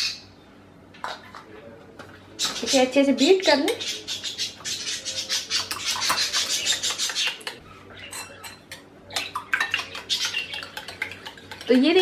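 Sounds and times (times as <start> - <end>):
spoon beating eggs in a bowl: 5.4 - 12.0.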